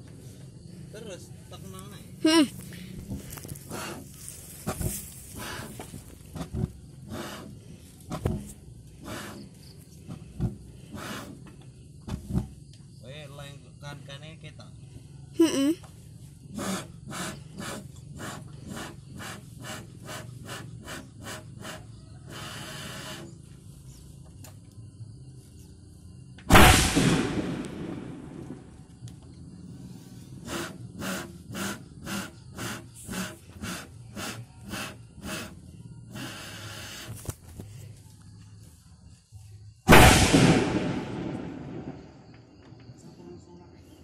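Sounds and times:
bamboo cannon boom: 0:26.5 - 0:28.7, 0:39.9 - 0:42.2.

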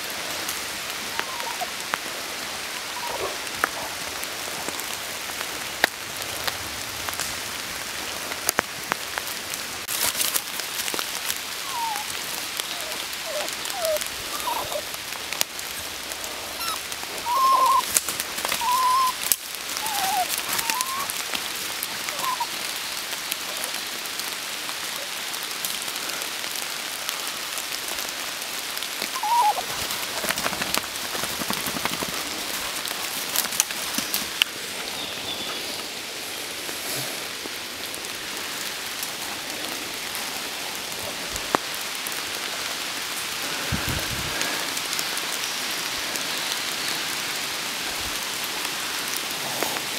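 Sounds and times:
rain falling on leaves: 0:00.0 - 0:49.9
short pitched calls: 0:16.5 - 0:17.9, 0:18.6 - 0:19.2, 0:19.8 - 0:21.1, 0:29.2 - 0:29.7.

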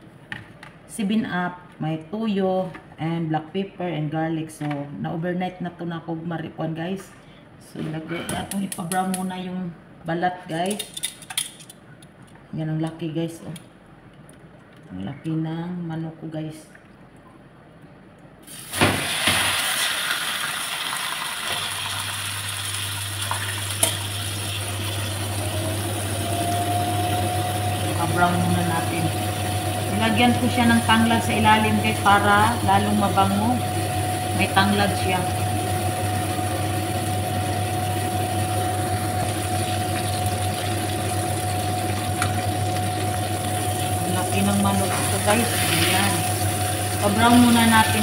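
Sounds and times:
low steady hum: 0:00.0 - 0:18.4, 0:22.5 - 0:48.0
chicken sizzling in hot oil: 0:18.5 - 0:32.4, 0:33.8 - 0:48.0.

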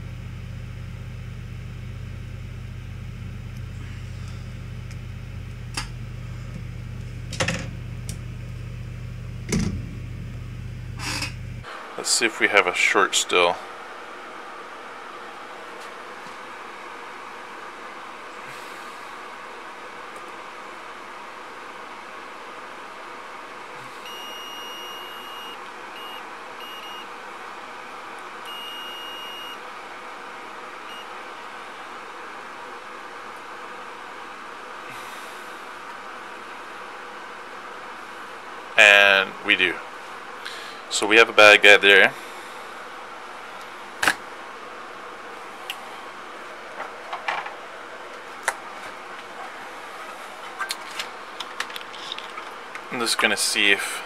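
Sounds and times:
steady background hiss: 0:11.6 - 0:54.0
multimeter high beeps: 0:24.1 - 0:27.1, 0:28.5 - 0:29.6.

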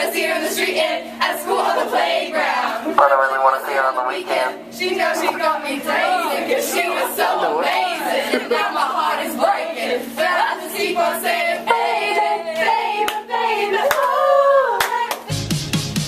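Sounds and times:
faint steady hum: 0:02.8 - 0:06.1
girls singing and chanting: 0:02.9 - 0:15.2.

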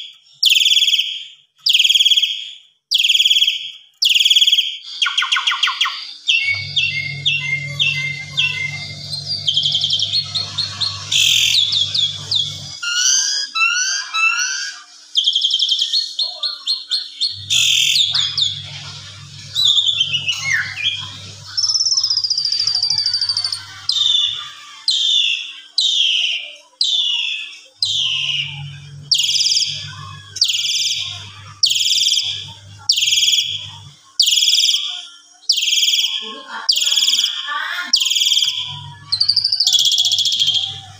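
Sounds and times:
bird singing whistles and trills: 0:00.4 - 0:33.6, 0:34.2 - 0:37.4, 0:38.0 - 0:40.7.

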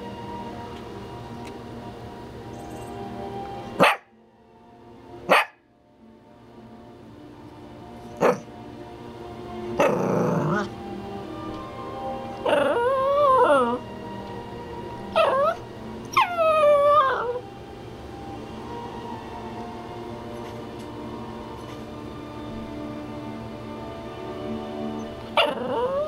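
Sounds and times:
small dog yipping and barking: 0:03.8 - 0:04.1, 0:05.3 - 0:05.6, 0:08.2 - 0:08.4, 0:15.2 - 0:17.4, 0:25.4 - 0:26.0
dog whining howl-like calls: 0:12.2 - 0:13.8, 0:15.0 - 0:17.4, 0:25.0 - 0:26.0.

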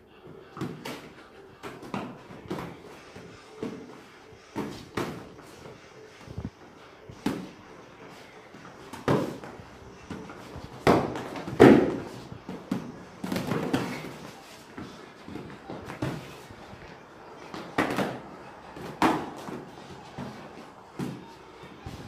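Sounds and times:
punches and kicks on pads: 0:10.1 - 0:14.3.

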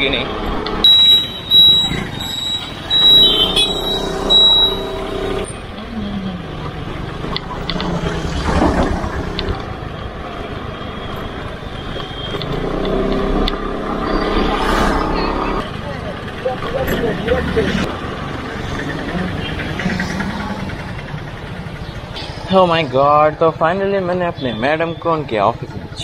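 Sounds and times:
scooter engine running: 0:00.9 - 0:10.7, 0:15.4 - 0:22.5.

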